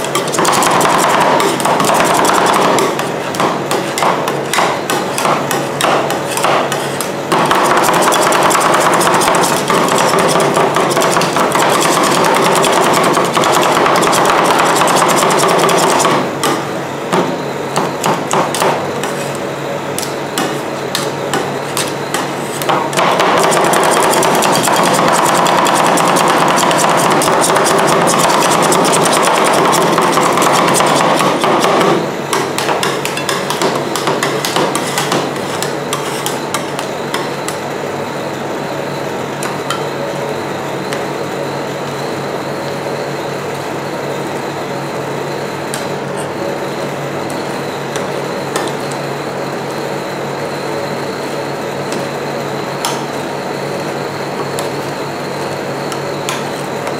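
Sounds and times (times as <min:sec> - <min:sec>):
metal spatulas chopping on steel: 0:00.1 - 0:16.6, 0:23.0 - 0:37.2.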